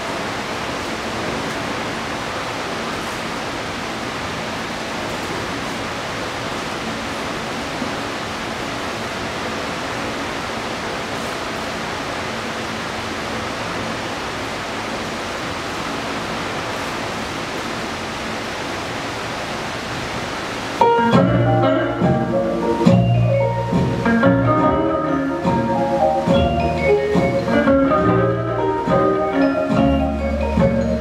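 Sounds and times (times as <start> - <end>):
steady hiss: 0.0 - 31.0
music: 20.8 - 31.0.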